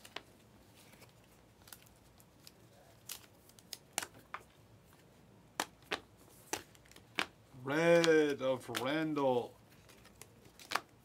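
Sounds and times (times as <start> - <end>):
trading cards flipping and snapping: 5.6 - 9.0, 9.8 - 11.0.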